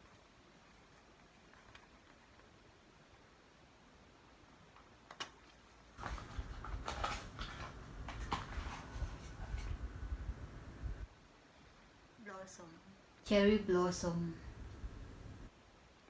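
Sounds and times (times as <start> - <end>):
paperboard box rustling: 6.0 - 9.8.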